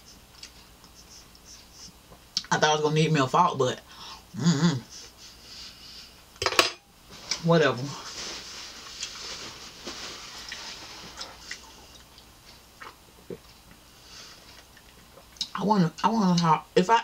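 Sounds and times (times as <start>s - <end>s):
wet chewing: 10.4s - 13.8s.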